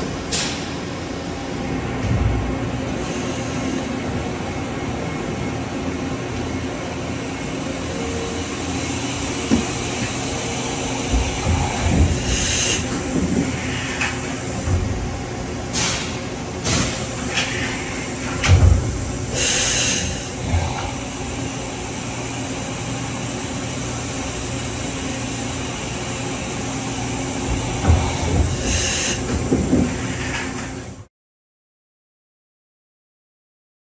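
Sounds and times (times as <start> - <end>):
machine humming: 0.0 - 31.0
machine clunks: 18.2 - 19.0.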